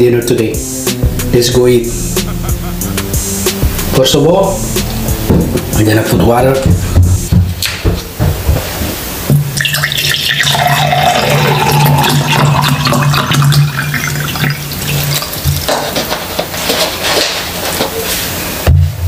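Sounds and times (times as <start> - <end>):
water pouring over ice: 9.6 - 15.7.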